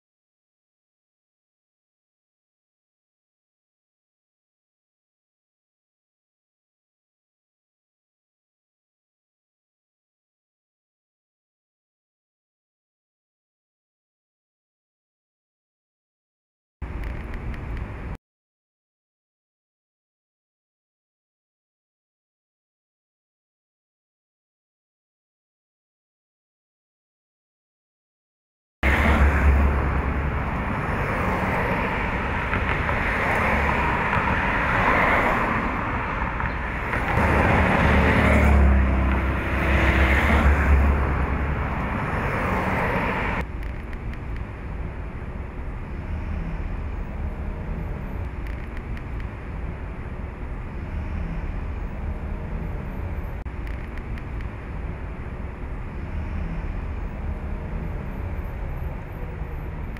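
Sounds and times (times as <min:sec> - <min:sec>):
road traffic: 0:16.8 - 0:18.2, 0:28.8 - 0:59.9.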